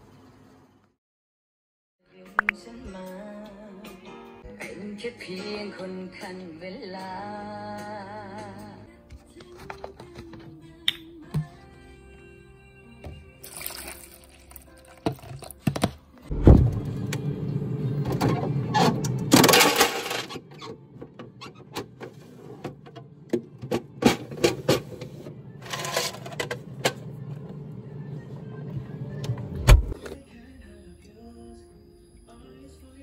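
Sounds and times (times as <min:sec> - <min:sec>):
background music: 0:02.0 - 0:18.0.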